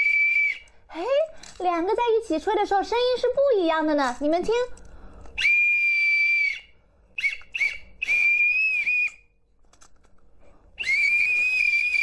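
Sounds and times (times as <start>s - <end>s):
shrill toy whistles: 0.0s - 0.7s, 5.4s - 9.3s, 10.8s - 12.0s.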